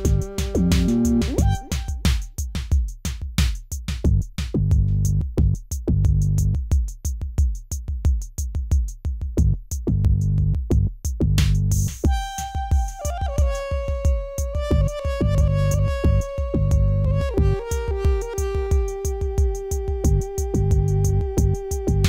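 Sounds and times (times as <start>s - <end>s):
low synth chords: 0.0s - 2.0s, 12.1s - 22.0s
kick drums: 0.0s - 22.0s
hi-hat ticks: 6.4s - 9.4s.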